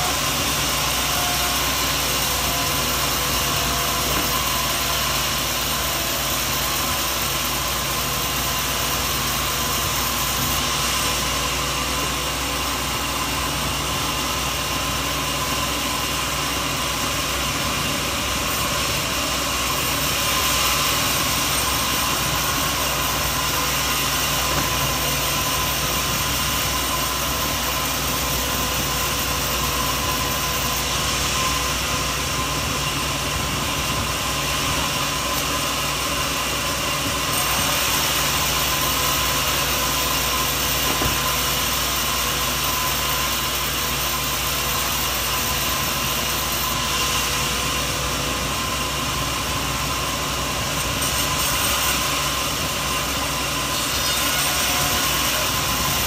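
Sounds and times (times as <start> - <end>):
sawmill machinery hum and hiss: 0.0 - 56.0.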